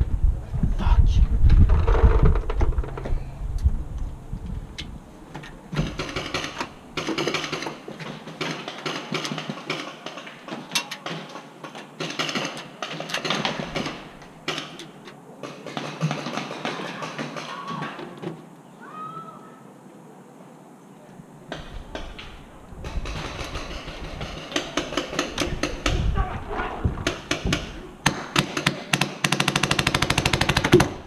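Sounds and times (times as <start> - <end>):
low rumble: 0.0 - 6.9.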